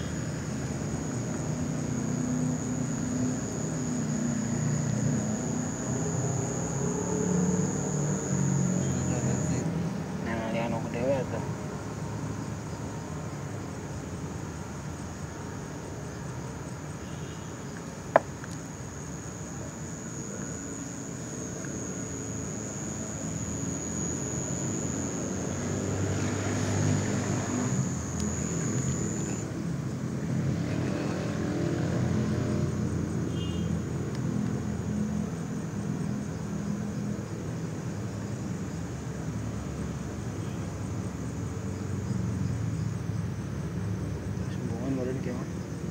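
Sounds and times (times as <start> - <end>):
small motor droning: 0.0 - 9.6, 18.1 - 29.5
crickets trilling: 0.0 - 45.9.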